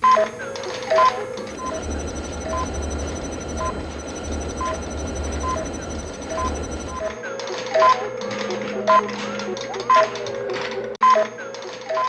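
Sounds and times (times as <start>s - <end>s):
alternating electronic console beeps: 0.9s - 7.1s
faint high whine: 1.0s - 7.1s
low electrical hum: 1.4s - 7.0s.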